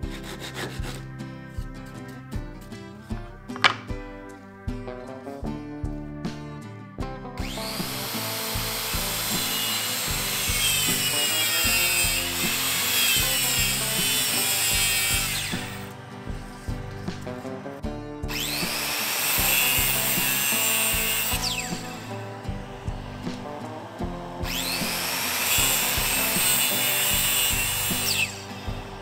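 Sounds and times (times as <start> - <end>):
circular saw cutting plywood: 0.0 - 1.1, 3.5 - 3.9, 7.4 - 17.7, 18.3 - 29.0
background music: 0.0 - 29.0.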